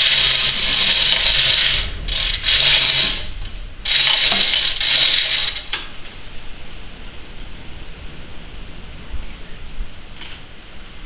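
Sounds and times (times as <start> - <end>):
steel chain rattling through hoist: 0.0 - 5.9.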